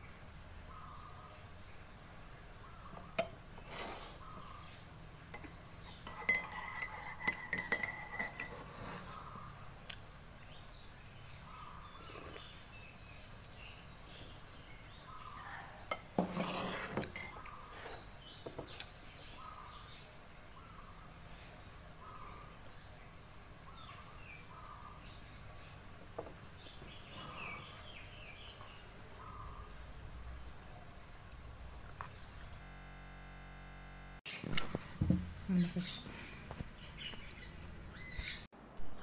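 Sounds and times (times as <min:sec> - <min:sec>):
dishes clinking on a table: 0:05.3 - 0:09.0, 0:15.9 - 0:17.5.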